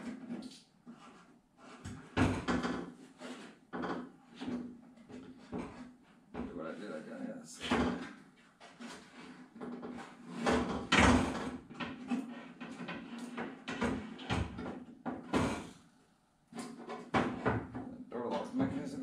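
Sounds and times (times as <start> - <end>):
door glass knocking and scraping: 1.8 - 3.0, 9.5 - 15.7, 16.6 - 17.9.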